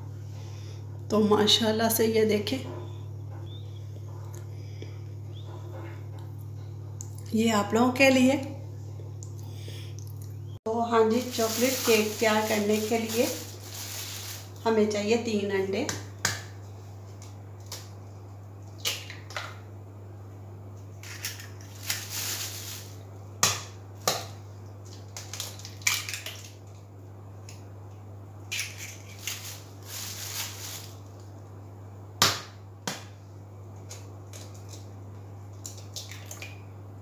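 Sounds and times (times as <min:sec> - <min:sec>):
shells crackling apart: 0:21.0 - 0:23.0, 0:24.8 - 0:26.6
eggshells cracking: 0:24.9 - 0:26.6.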